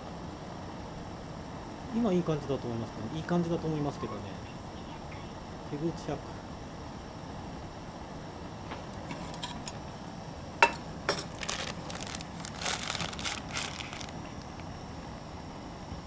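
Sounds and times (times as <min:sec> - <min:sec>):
plastic packet crinkling: 0:11.2 - 0:14.4
plastic packet cracking: 0:11.2 - 0:14.5.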